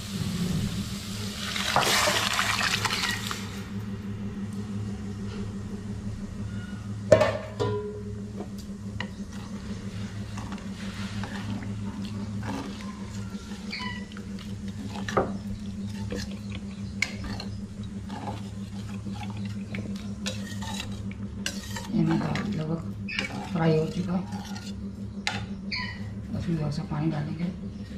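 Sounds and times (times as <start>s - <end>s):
low hum: 0.0s - 27.9s
ladle scraping steel pot: 10.0s - 24.8s.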